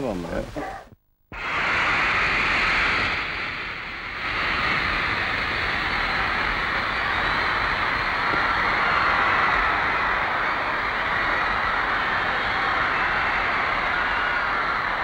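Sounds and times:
crowd screaming and cheering: 4.0 - 15.0.

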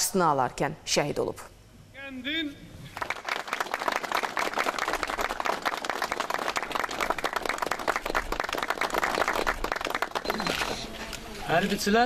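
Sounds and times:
crowd applauding: 2.9 - 10.8.

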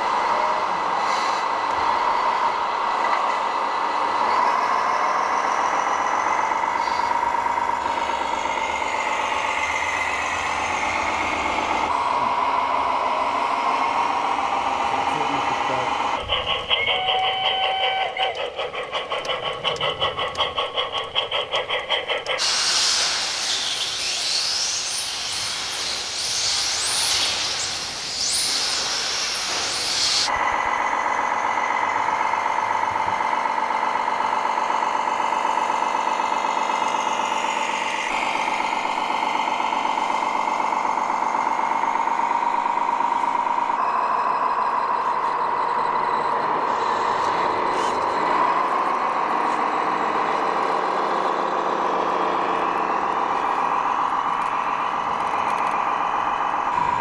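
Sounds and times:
steam hissing: 0.0 - 2.8, 4.0 - 30.5
diesel engine sound module: 0.0 - 57.0
model steam locomotive chuffing: 0.0 - 57.0.

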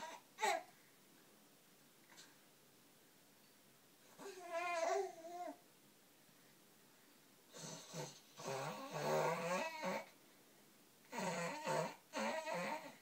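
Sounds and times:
baby growling: 4.2 - 5.6, 7.5 - 10.1, 11.1 - 13.0.

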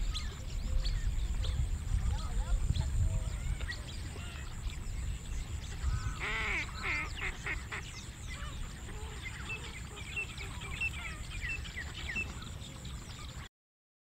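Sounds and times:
small birds chirping: 0.0 - 13.5
bird honking calls: 5.7 - 12.4.

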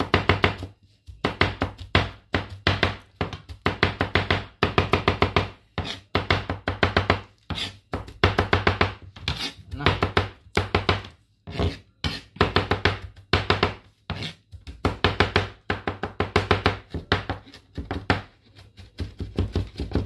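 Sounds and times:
knife mincing on cutting board: 5.8 - 6.1, 7.4 - 8.2, 9.2 - 9.9, 11.5 - 12.4, 14.1 - 14.8.

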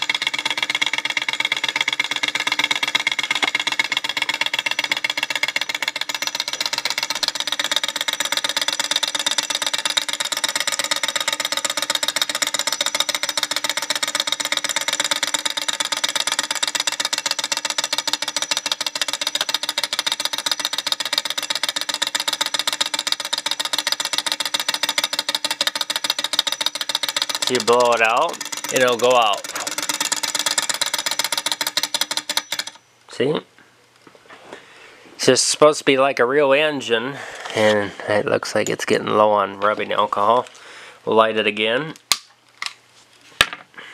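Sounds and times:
stirling engine clattering clicks: 0.0 - 32.8.

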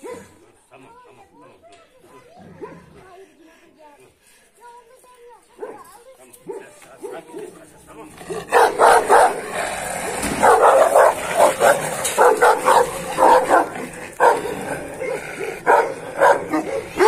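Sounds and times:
dogs barking: 8.3 - 17.0.

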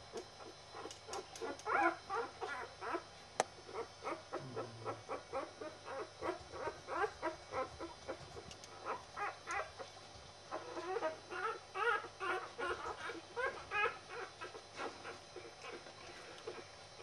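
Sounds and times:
puppies whimpering and squeaking: 0.4 - 9.9, 10.5 - 17.0.

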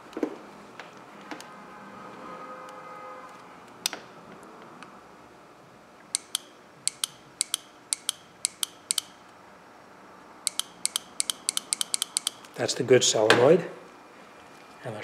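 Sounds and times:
solenoid clicking: 6.1 - 9.2, 10.5 - 12.5.

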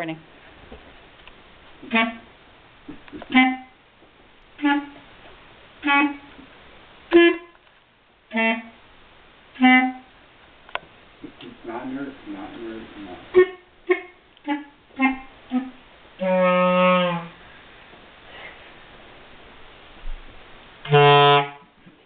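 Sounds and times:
clarinet playing low notes: 1.8 - 2.3, 3.1 - 3.8, 4.6 - 5.0, 5.8 - 6.4, 7.1 - 7.6, 8.3 - 8.8, 9.6 - 10.1, 13.3 - 17.4, 20.8 - 21.7.

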